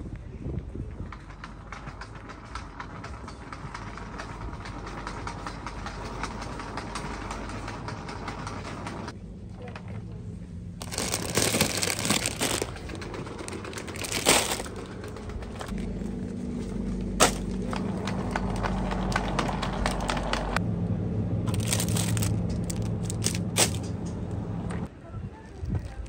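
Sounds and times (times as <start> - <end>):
refrigerator low hum: 2.8 - 26.0
plastic bag crinkling: 10.8 - 15.8, 17.2 - 17.7, 21.5 - 23.9, 25.5 - 26.0
shopping basket clicks and rustles: 10.8 - 16.0, 17.1 - 20.5, 21.5 - 24.2.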